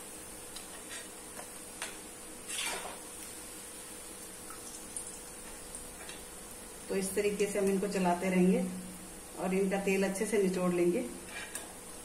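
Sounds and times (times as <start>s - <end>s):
food sizzling in hot oil: 0.0s - 12.0s
skimmer scraping a pan: 2.4s - 3.0s.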